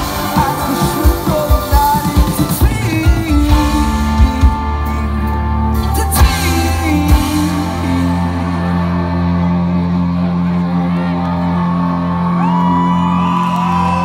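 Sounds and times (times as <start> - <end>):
man singing: 0.0 - 9.5
drums: 0.0 - 14.0
live pop-rock band: 0.0 - 14.0.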